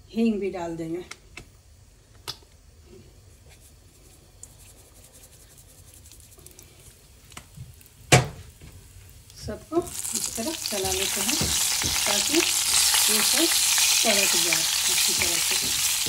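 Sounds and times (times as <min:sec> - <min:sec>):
seeds crackling in hot oil: 0:03.5 - 0:16.0.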